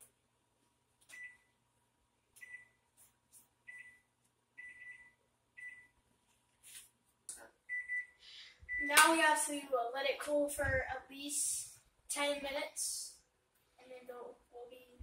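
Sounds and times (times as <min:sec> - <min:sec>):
oven keypad beeps: 0:03.7 - 0:04.0, 0:04.6 - 0:05.9, 0:07.7 - 0:08.9.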